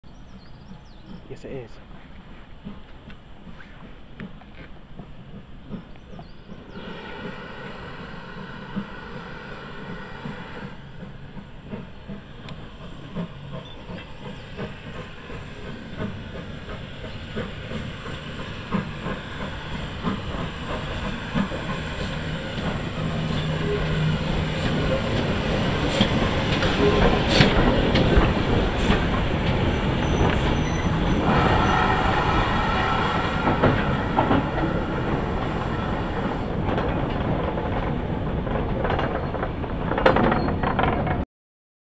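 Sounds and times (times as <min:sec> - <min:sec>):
steam locomotive: 0:00.1 - 0:41.2
steam hissing: 0:05.0 - 0:36.7
wheels clanking over rail joints: 0:09.8 - 0:41.2.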